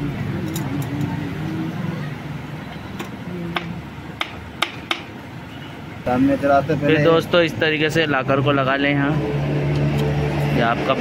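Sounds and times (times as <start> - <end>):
metallic clicks of engine parts: 0.4 - 1.1.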